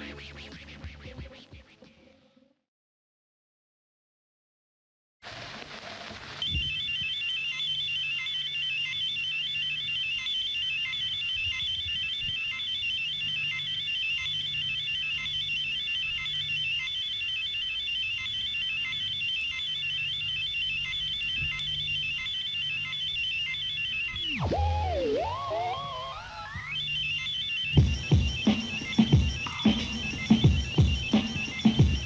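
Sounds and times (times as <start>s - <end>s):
warbling electronic trill: 6.7s - 32.0s
low bass line: 24.3s - 26.6s.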